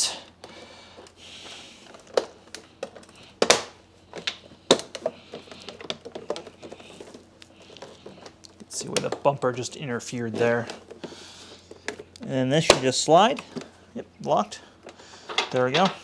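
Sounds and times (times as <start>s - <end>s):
plastic scraping: 1.8s - 13.8s.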